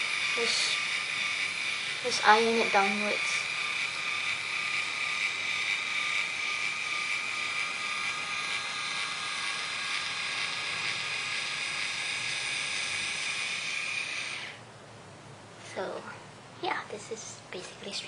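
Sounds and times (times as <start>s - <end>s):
hair iron motor whining: 0.0s - 14.6s.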